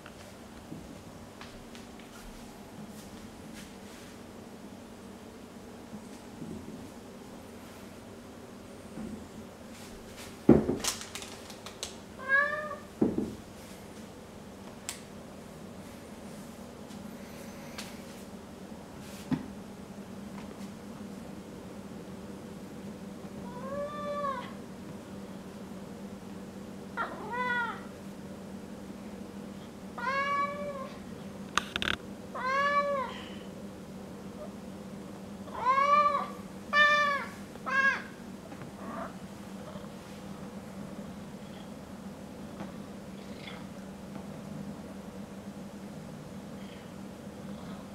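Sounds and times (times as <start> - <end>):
cat meowing: 12.2 - 12.9, 27.0 - 27.8, 30.0 - 30.9, 32.4 - 33.1, 35.5 - 38.1.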